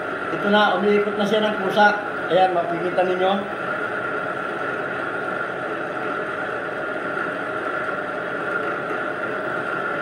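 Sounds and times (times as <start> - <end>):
metal lathe running with whine: 0.0 - 10.0.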